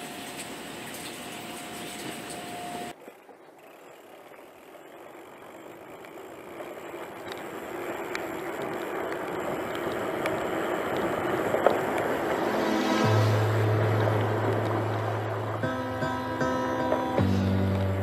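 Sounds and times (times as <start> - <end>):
light bike clicks: 2.3 - 12.5
tyre hiss on wet asphalt: 7.4 - 16.2
steady tone: 11.1 - 18.0.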